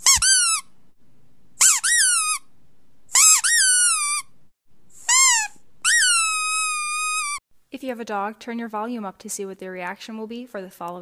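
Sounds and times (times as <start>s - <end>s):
squeaky dog toy squeaking: 0.0s - 0.7s, 1.6s - 2.5s, 3.1s - 4.4s, 5.0s - 7.4s.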